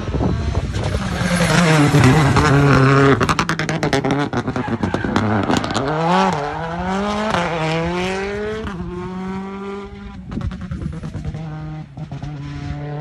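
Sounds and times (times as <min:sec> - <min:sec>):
car accelerating with upshifts: 0:00.0 - 0:13.0
rally car engine crackling and popping: 0:00.0 - 0:13.0.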